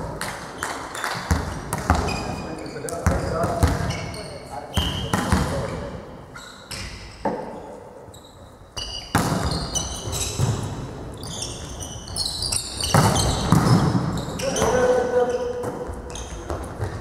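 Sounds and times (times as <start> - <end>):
volleyball bouncing on floor: 0.0 - 4.0, 4.8 - 5.7, 8.8 - 10.8, 12.8 - 14.9
sneakers squeaking on court: 0.6 - 17.0.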